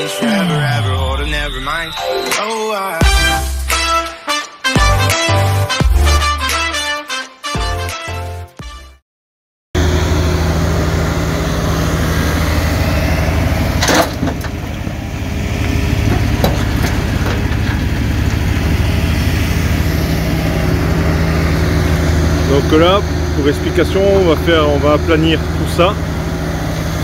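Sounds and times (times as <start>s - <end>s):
intro music: 0.0s - 9.0s
earthmoving machine engine running: 9.8s - 27.0s.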